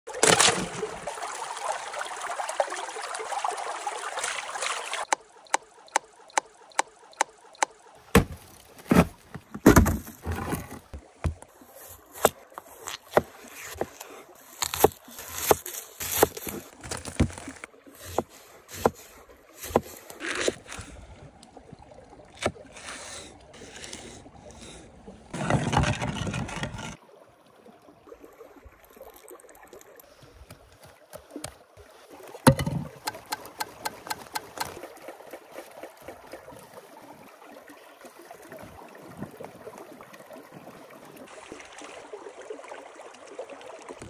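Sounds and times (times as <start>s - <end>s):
wooden slab thudding on ice: 8.1s - 11.4s, 14.6s - 19.0s, 32.5s - 34.8s
water hissing and sloshing: 10.1s - 27.0s
knife chopping on wooden board: 32.5s - 34.7s.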